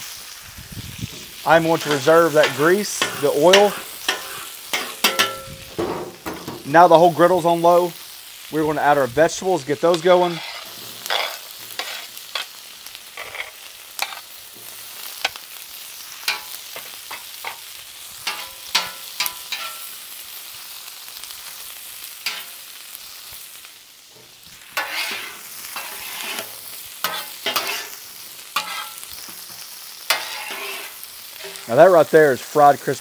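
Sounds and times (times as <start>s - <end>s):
vegetables sizzling in oil: 0.0s - 33.0s
tongs and spatulas clicking on steel: 18.2s - 19.8s.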